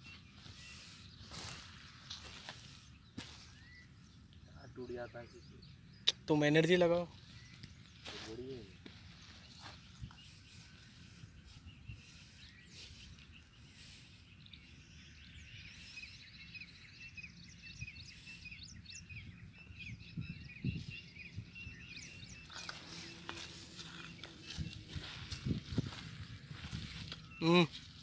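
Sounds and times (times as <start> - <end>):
small birds chirping: 0.0 - 28.0.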